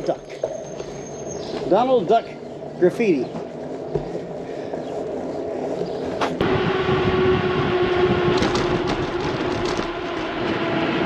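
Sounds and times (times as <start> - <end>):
bicycle rolling on pavement: 0.0 - 11.0
steady droning hum: 0.0 - 11.0
wind on microphone: 5.5 - 11.0.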